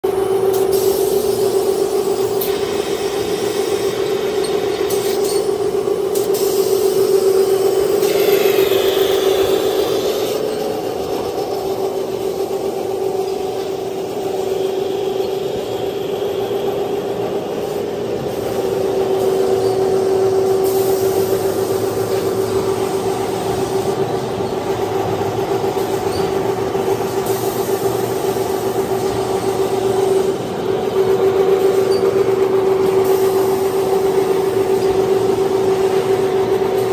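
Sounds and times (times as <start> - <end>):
machine humming: 0.0 - 36.9.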